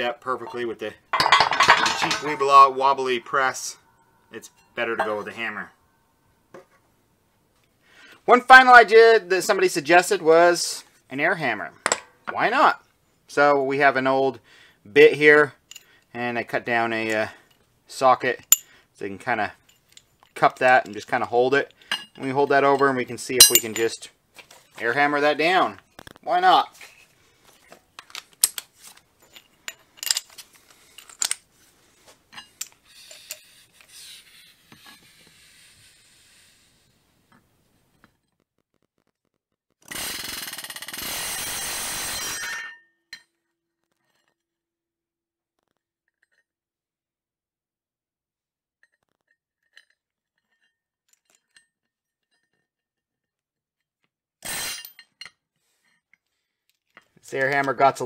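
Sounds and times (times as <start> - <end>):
metal tool parts clinking: 0.5 - 2.9, 21.8 - 24.0, 28.0 - 31.5
metal clinks and taps: 1.1 - 2.5.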